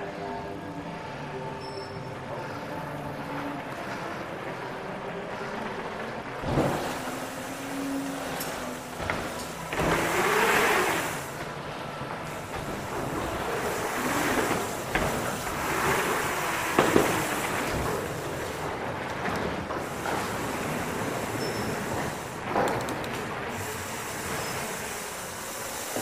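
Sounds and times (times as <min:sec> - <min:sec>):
bike tyres rolling: 0:02.6 - 0:26.0
bike knocks: 0:12.4 - 0:18.2.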